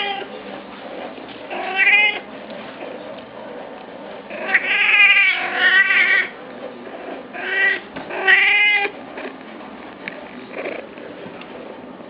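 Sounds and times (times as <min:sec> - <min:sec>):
cat meowing: 0:01.5 - 0:02.3, 0:04.4 - 0:06.4, 0:07.3 - 0:08.9.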